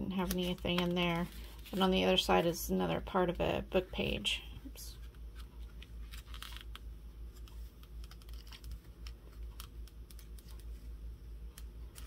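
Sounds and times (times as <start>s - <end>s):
paper pages turning and rustling: 0.2s - 2.0s, 5.0s - 10.9s.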